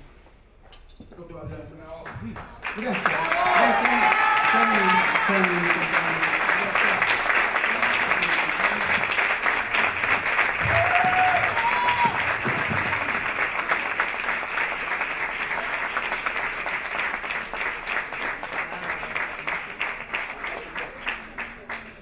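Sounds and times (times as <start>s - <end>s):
audience applauding: 2.3s - 22.0s.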